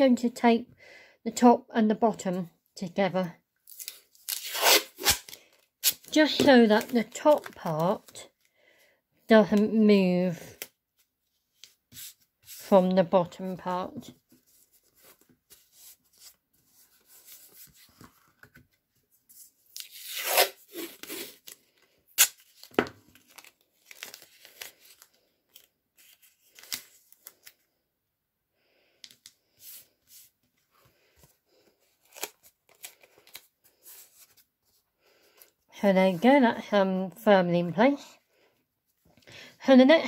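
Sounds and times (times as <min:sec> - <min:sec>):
tape ripping from a roll: 0:03.7 - 0:06.1, 0:19.7 - 0:21.5, 0:22.1 - 0:24.9.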